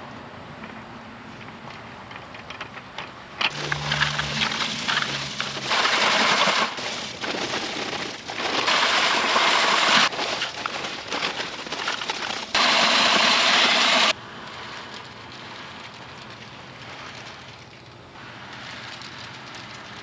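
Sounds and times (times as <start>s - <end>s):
concrete mix pouring into bucket: 3.5s - 17.7s.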